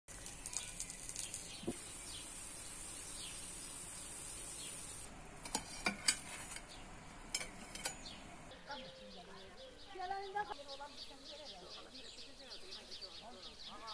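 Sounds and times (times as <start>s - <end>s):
food sizzling in a frying pan: 0.1s - 6.4s
utensil clinking on cookware: 5.4s - 6.7s, 7.3s - 8.1s.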